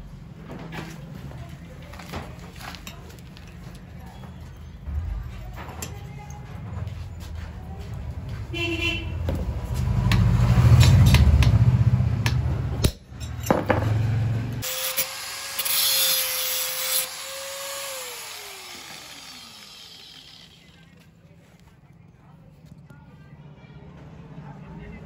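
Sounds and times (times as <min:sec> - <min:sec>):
grinder disc cutting hiss: 0:14.6 - 0:20.9
angle grinder whining: 0:14.6 - 0:21.0.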